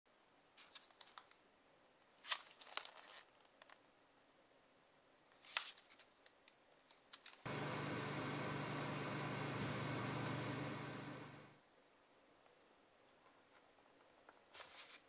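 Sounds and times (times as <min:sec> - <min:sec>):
microwave oven humming: 0:07.5 - 0:11.6.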